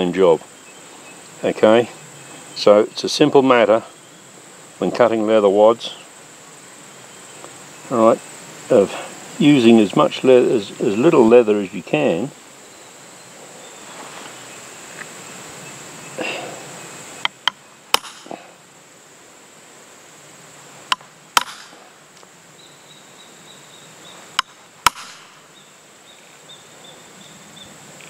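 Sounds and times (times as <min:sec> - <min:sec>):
hammer striking steel punch: 0:18.0 - 0:18.3.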